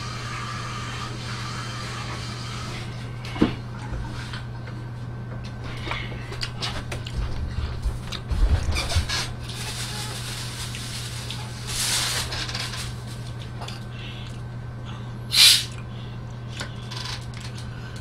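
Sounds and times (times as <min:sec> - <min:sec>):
carbonation hiss: 0:15.3 - 0:15.8.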